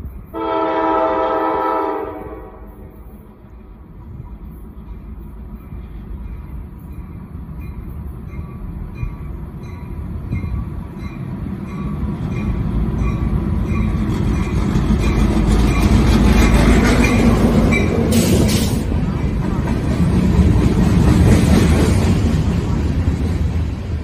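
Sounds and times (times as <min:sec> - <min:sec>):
diesel locomotive passing: 0:00.0 - 0:24.0
locomotive bell ringing: 0:04.8 - 0:16.1, 0:17.0 - 0:18.2.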